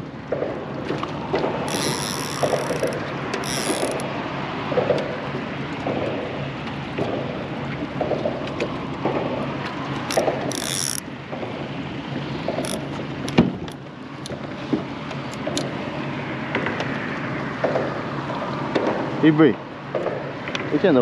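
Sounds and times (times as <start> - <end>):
mechanical clicking: 10.1 - 11.0.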